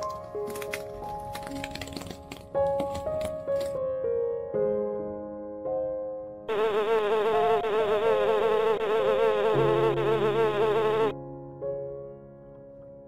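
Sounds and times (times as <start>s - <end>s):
bee buzzing: 6.5s - 11.1s.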